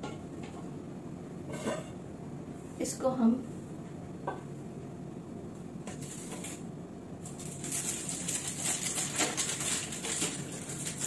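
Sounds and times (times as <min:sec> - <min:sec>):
aluminium foil crinkling: 0:06.0 - 0:06.6, 0:07.2 - 0:11.0.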